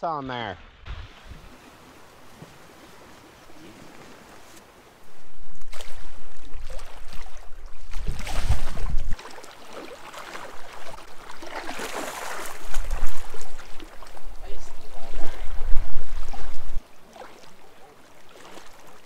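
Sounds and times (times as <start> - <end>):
wind buffeting microphone: 0.6 - 9.2, 12.5 - 16.9
water splashing around canoe: 0.8 - 19.0.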